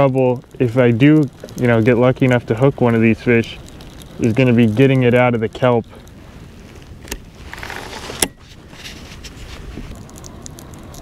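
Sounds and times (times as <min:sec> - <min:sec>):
faint wind: 0:00.0 - 0:11.0
water noise: 0:00.0 - 0:11.0.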